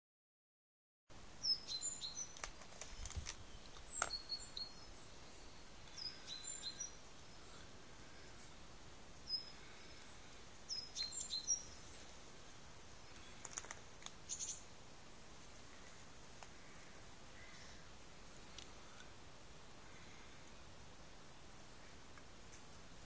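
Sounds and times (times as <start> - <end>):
faint outdoor hiss: 1.1 - 23.0
songbird chirping: 1.2 - 23.0
faint clicks: 13.1 - 14.2.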